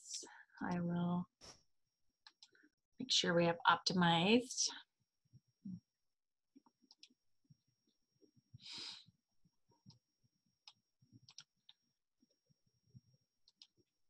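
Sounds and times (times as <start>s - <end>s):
computer mouse clicks: 2.2s - 2.6s, 6.7s - 7.2s, 10.6s - 11.8s, 13.4s - 13.9s.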